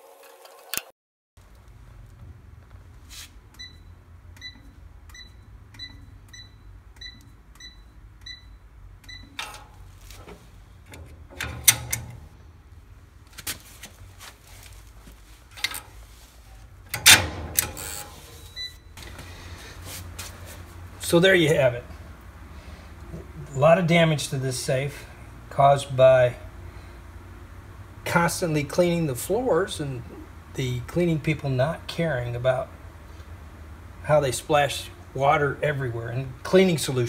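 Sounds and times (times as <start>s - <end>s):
keypad beeps: 4.4s - 9.4s
lock clunking and rattling: 9.4s - 12.4s, 16.9s - 17.9s.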